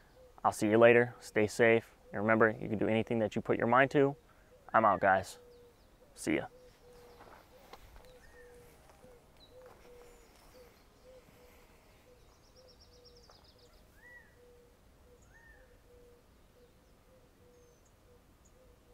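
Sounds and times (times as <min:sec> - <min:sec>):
low repeated bird note: 0:00.0 - 0:18.9
rising and falling bird calls: 0:03.9 - 0:18.9
rapid bird trill: 0:04.1 - 0:18.9.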